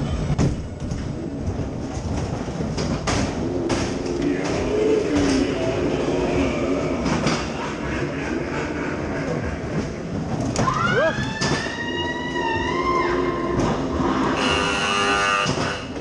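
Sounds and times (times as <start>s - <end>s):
ride car wheels rumbling on track: 0.0s - 11.7s.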